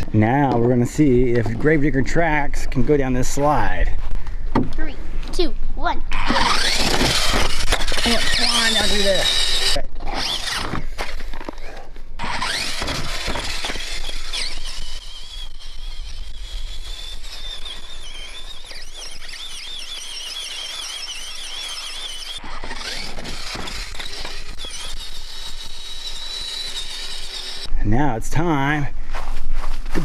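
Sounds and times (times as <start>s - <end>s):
toy truck electric motor whine: 6.1s - 10.8s, 12.2s - 27.7s.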